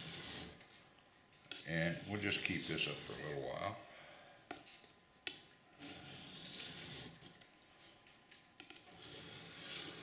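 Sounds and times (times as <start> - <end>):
knife scraping on sharpening stone: 5.8 - 7.4, 8.8 - 10.0.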